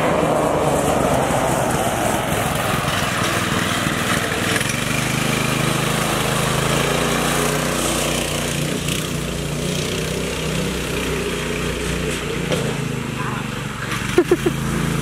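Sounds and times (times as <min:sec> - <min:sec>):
go-kart engine running: 0:00.0 - 0:15.0.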